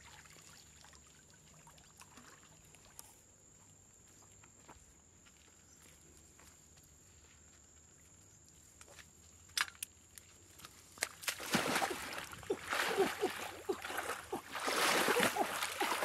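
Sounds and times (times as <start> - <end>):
muddy water splashing: 0.0 - 2.9, 11.0 - 16.0.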